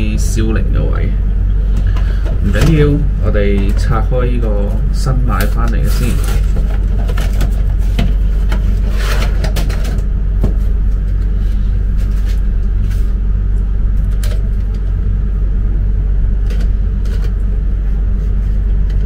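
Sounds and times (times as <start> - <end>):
low humming rumble: 0.0 - 19.0
cardboard package rustling: 5.8 - 9.2.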